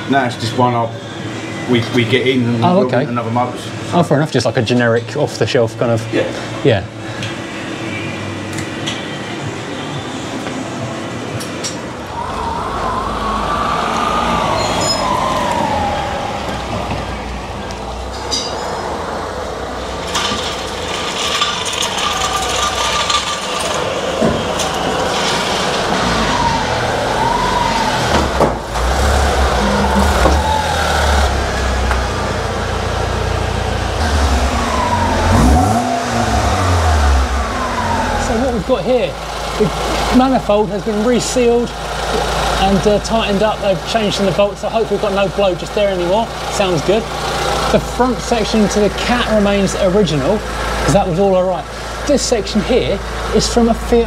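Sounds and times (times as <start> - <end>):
wavering siren-like tone: 11.9 - 19.5, 21.4 - 39.2
low rumbling: 12.0 - 39.6
car engine idling and revving: 12.4 - 54.0.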